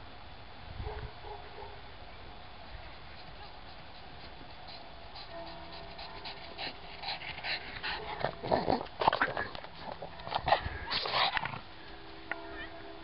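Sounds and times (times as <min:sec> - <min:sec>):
dog gasping for breath: 0:03.2 - 0:08.4.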